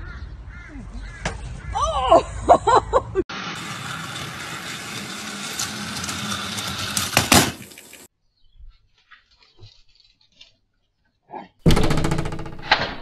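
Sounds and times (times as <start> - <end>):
toy train motor hum and rattle: 3.3 - 8.1
toy train clacks: 3.6 - 8.1.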